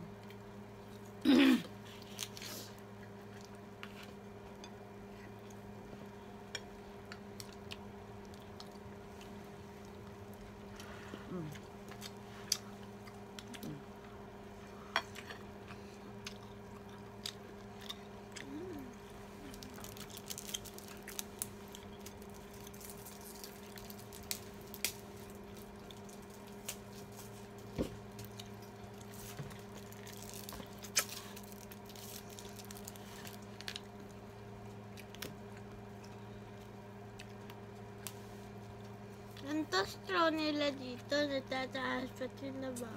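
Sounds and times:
steady low hum: 0:00.0 - 0:42.9
chewing: 0:07.4 - 0:14.1, 0:15.0 - 0:26.7, 0:28.2 - 0:33.9.

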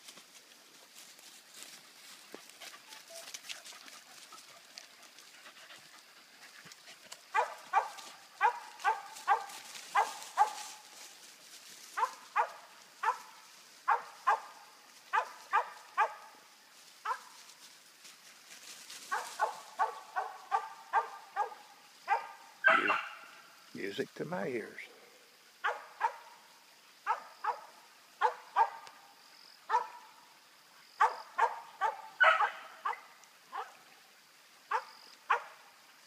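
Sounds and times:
dog barking: 0:07.3 - 0:10.7, 0:12.0 - 0:14.5, 0:15.1 - 0:16.3, 0:17.0 - 0:17.4, 0:19.1 - 0:23.3, 0:25.6 - 0:26.4, 0:27.0 - 0:28.9, 0:29.7 - 0:30.1, 0:31.0 - 0:33.8, 0:34.7 - 0:35.6.

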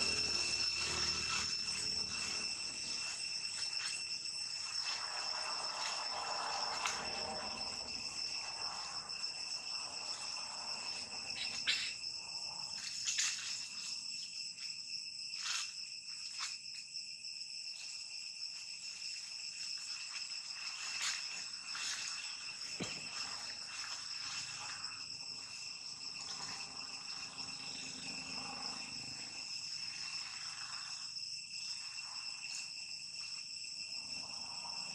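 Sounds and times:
high-pitched insect drone: 0:00.0 - 0:34.9.

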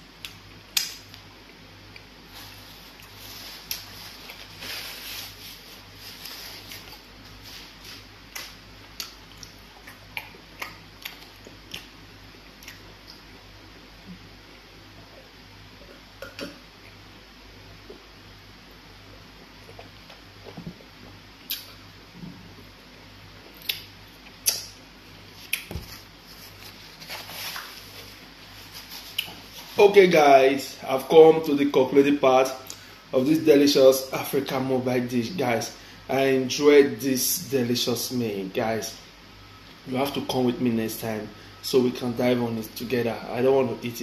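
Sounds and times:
napkin rustling: 0:02.3 - 0:08.1, 0:25.7 - 0:30.0
mouth smacking while chewing: 0:08.3 - 0:13.3, 0:21.5 - 0:21.8, 0:25.4 - 0:25.7
mouth smacks: 0:21.5 - 0:21.8, 0:23.6 - 0:24.8.

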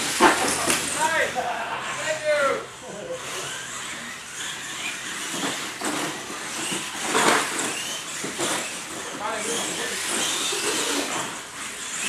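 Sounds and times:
toy truck crashing on landing: 0:00.0 - 0:01.0, 0:04.6 - 0:11.5
toy truck motor whining: 0:00.0 - 0:12.0.

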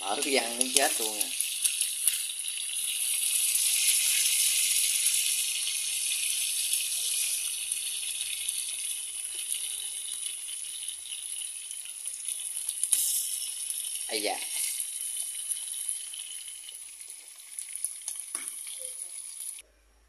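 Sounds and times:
food sizzling in hot oil: 0:00.0 - 0:19.6.

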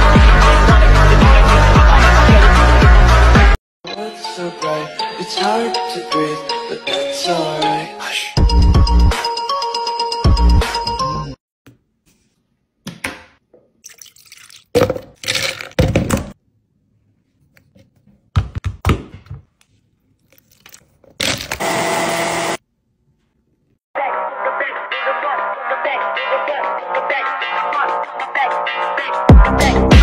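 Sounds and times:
blender running: 0:21.6 - 0:22.6.

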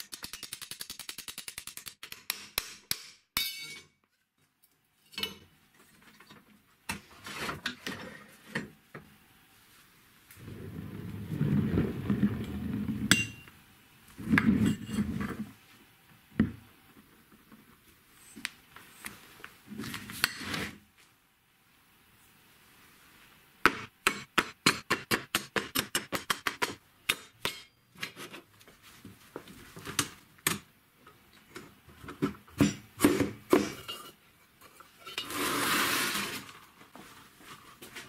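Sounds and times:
shock absorbers rolling on wood: 0:10.4 - 0:13.1.

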